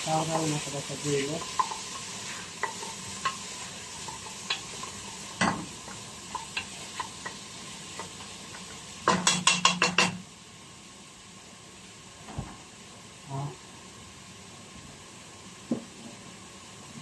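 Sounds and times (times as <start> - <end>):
onions sizzling in oil: 0.0 - 17.0
spoon knocking against pot: 9.0 - 10.2.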